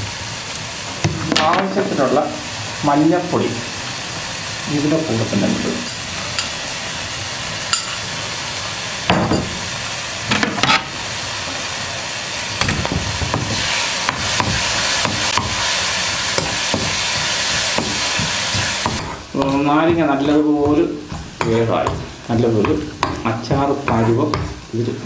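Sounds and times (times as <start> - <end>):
sizzling in hot oil: 0.0 - 25.0
spatula scraping pan: 13.2 - 24.6
utensil knocking against pan: 16.4 - 24.6.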